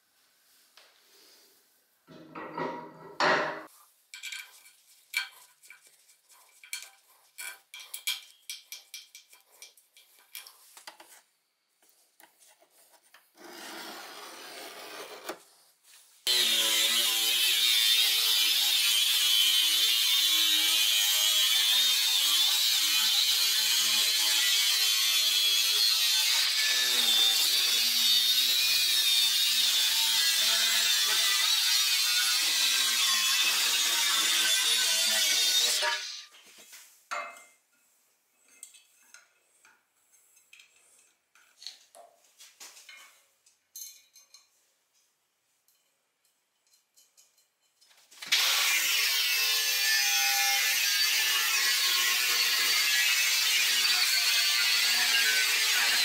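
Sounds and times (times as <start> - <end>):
angle grinder cutting sheet metal: 16.3 - 36.4, 48.2 - 56.0.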